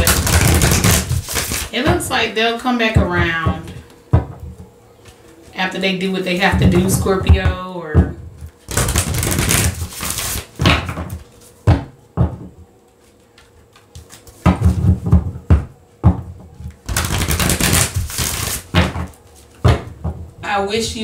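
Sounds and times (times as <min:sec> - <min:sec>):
cards being shuffled: 0:00.0 - 0:01.8, 0:08.4 - 0:11.6, 0:13.0 - 0:15.0, 0:16.6 - 0:19.6.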